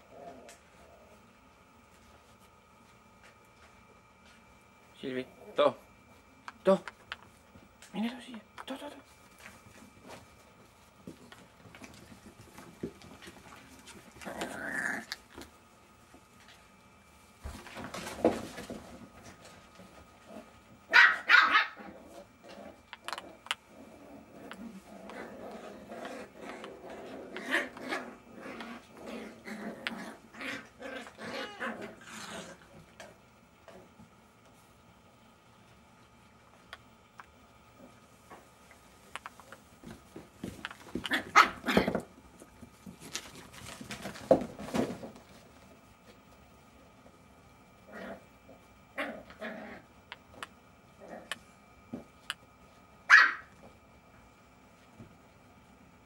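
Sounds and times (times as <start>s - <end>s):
puppies scuffling: 7.0s - 20.8s, 37.8s - 47.5s
puppy barking: 20.9s - 21.8s, 41.1s - 41.8s, 53.1s - 53.5s.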